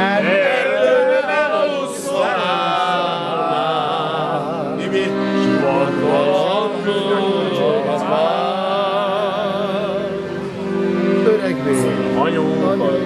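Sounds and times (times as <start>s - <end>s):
men singing together: 0.0s - 10.2s
accordion chords: 0.0s - 13.0s.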